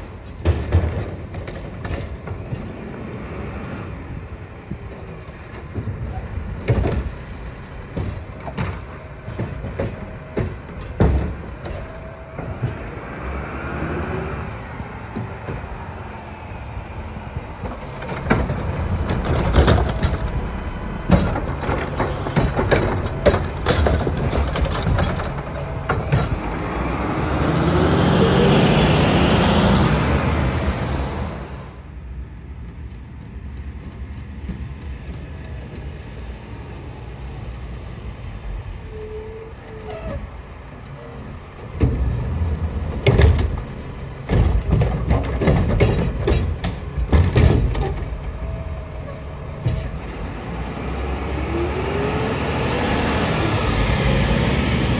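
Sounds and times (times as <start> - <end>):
truck diesel engine rattling: 5.6 - 31.7, 40.2 - 54.9
loud bangs of trash cart tipping: 43.0 - 48.2.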